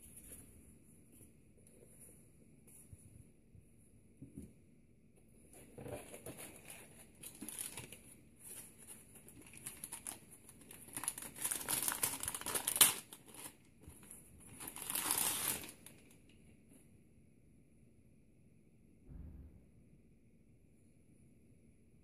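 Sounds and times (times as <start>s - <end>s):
plastic bag crinkling: 5.8s - 16.2s.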